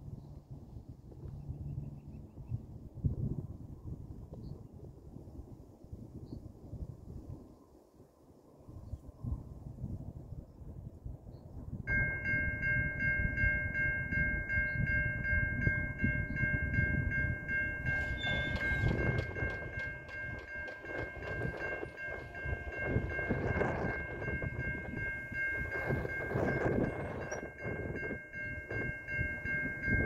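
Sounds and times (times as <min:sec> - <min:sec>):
train rumble and wheel clatter: 0:11.6 - 0:30.0.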